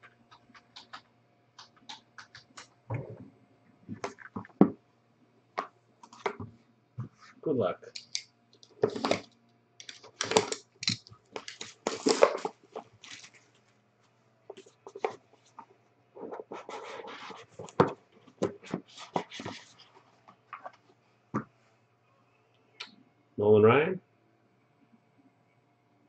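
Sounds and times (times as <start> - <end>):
plastic wrap tearing and crinkling: 8.8 - 13.5.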